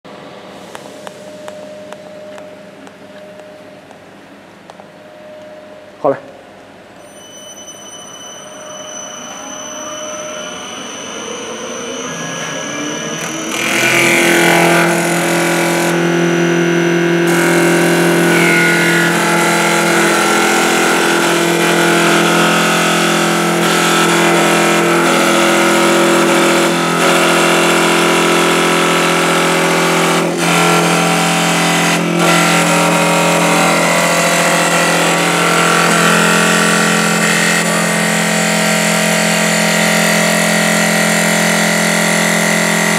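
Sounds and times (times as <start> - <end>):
lathe motor whine: 7.1 - 42.9
cutter cutting spinning wood: 12.1 - 42.9.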